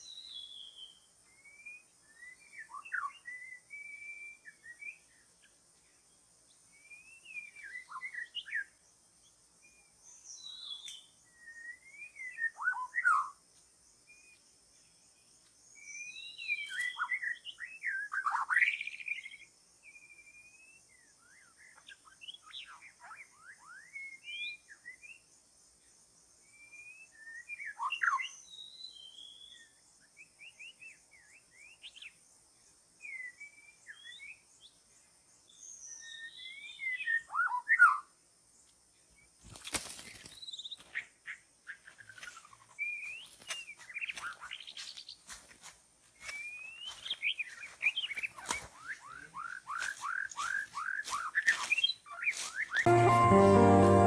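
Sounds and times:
bird singing whistled phrases: 0.0 - 5.0.

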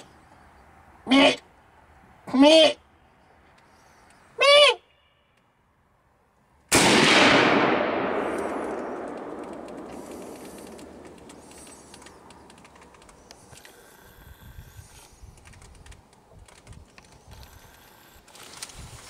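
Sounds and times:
rifle shot echoing: 6.7 - 11.3.

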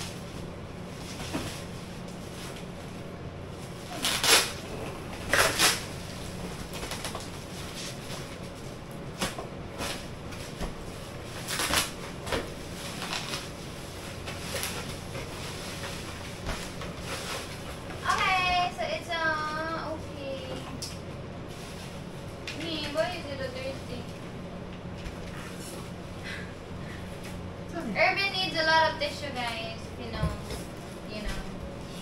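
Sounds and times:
plastic packaging rustling: 0.0 - 18.7
steady low hum: 0.0 - 32.0.

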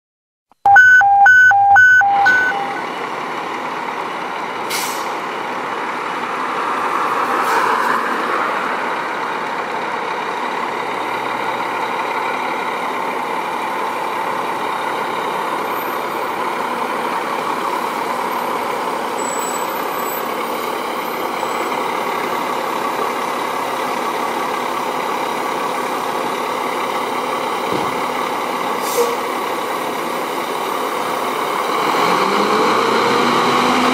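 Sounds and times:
loud electronic beeps: 0.7 - 2.8
fire engine running: 0.7 - 7.3, 8.2 - 33.9.

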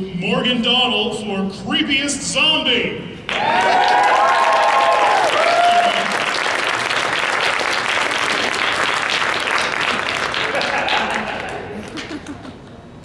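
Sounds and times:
high-pitched cheering voices: 3.3 - 6.2
audience applause: 3.3 - 12.5.

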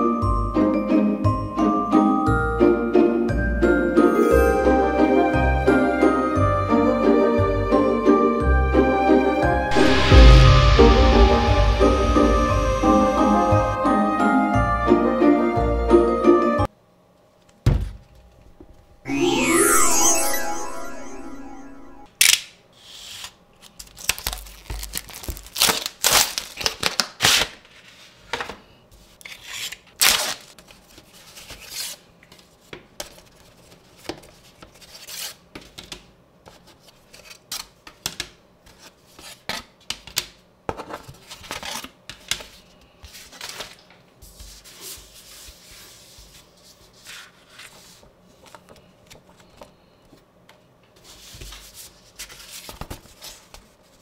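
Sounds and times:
plastic shrink-wrap tearing: 23.8 - 27.6, 30.0 - 30.5.

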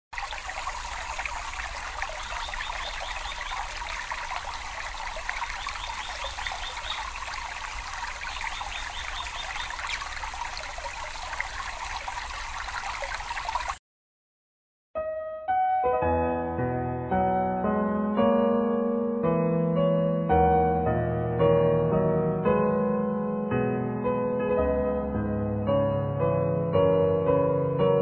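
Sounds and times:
water trickling over stones: 0.2 - 13.8.

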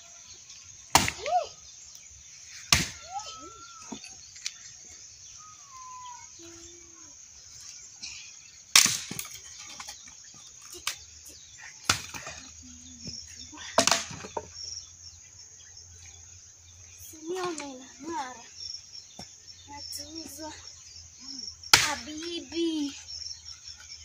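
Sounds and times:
axe chopping wood: 0.9 - 1.4, 2.7 - 3.0, 8.7 - 9.4, 13.8 - 14.5, 21.7 - 22.1.

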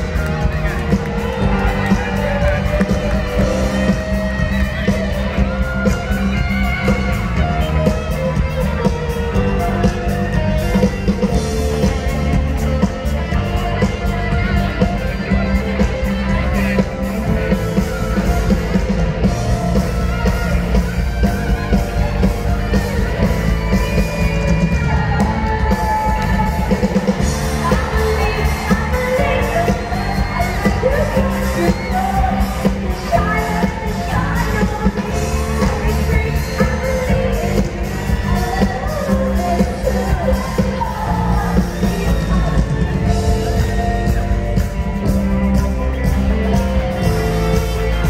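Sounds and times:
live pop-rock band with singer: 0.0 - 48.0.

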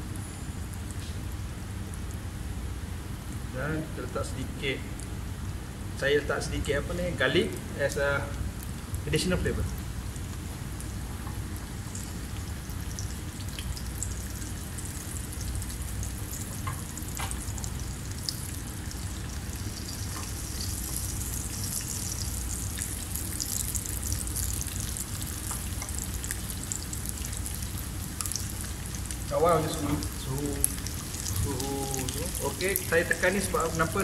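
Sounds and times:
fish sizzling in oil: 9.9 - 34.0.

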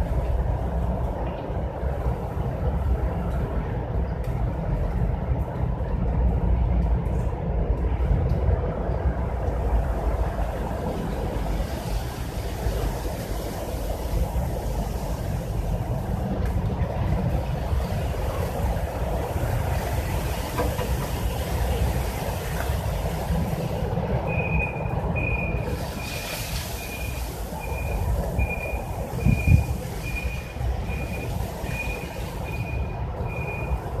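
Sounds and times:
high electronic beep: 26.8 - 33.8.

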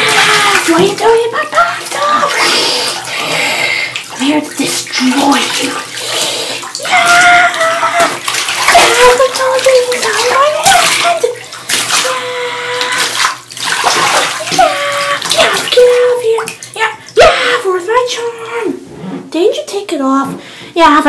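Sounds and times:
person making wavering wordless sounds: 0.0 - 3.7, 5.0 - 11.4, 12.0 - 13.2, 14.4 - 18.8
bathwater splashing: 0.0 - 19.4.

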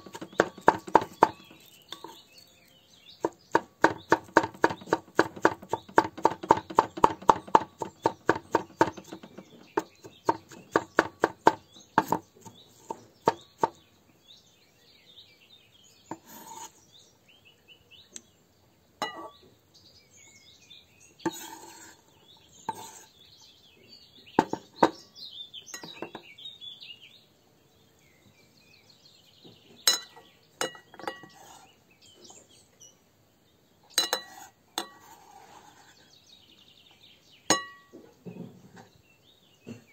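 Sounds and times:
scattered knocks: 0.0 - 1.6, 3.2 - 12.2
knife chopping on wooden board: 0.0 - 2.2, 3.2 - 13.8
birds chirping faintly: 0.0 - 39.9
knife clinking against glass bowl: 19.0 - 19.3, 29.9 - 31.4, 34.0 - 35.1, 37.5 - 37.9.

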